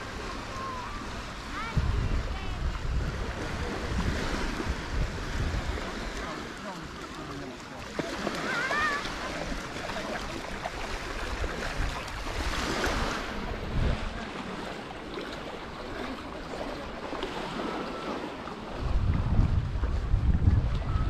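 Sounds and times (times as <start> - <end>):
wind on microphone: 0.0 - 6.3, 10.7 - 14.6, 17.0 - 21.0
surf washing onto beach: 0.0 - 21.0.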